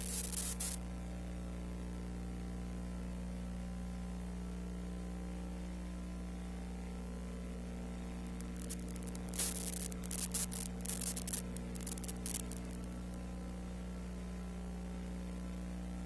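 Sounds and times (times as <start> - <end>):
constant hiss: 0.0 - 0.8, 7.9 - 13.3
crackling static: 0.0 - 0.9, 7.4 - 13.7
electrical mains hum: 0.0 - 16.0.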